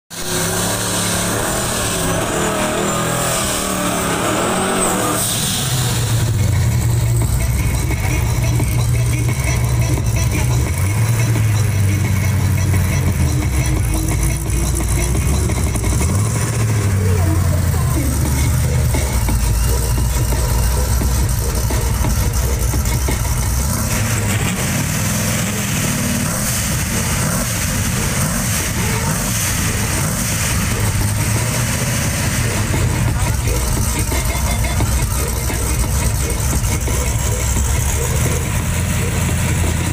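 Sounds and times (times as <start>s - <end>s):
truck engine revving: 0.0s - 39.9s.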